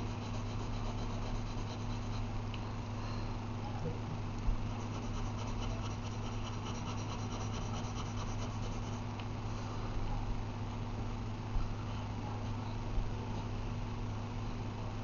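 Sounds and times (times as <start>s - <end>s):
pencil shading on paper: 0.0s - 2.3s, 4.8s - 9.0s
low electrical hum: 0.0s - 15.0s.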